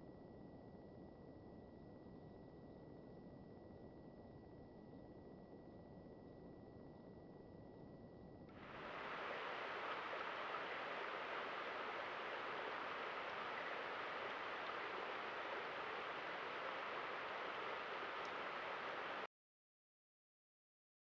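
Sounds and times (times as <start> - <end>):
steady hiss: 8.6 - 19.3
thin high whine: 8.6 - 19.3.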